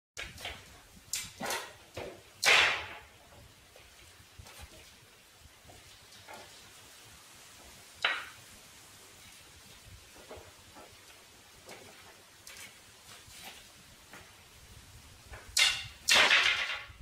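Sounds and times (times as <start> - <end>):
sharp wooden clack: 0.2 - 3.2, 8.0 - 8.4, 15.3 - 17.0
wooden boards knocking: 1.2 - 3.2, 8.0 - 8.4, 15.3 - 17.0.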